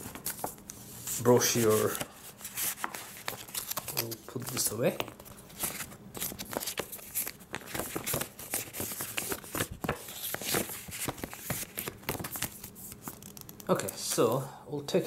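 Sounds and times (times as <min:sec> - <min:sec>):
paper rustling: 0:00.0 - 0:14.2.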